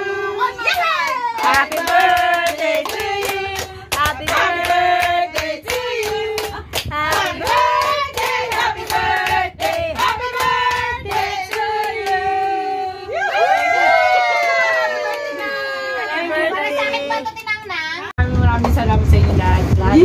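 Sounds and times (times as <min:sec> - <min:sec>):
group singing: 0:00.0 - 0:13.2.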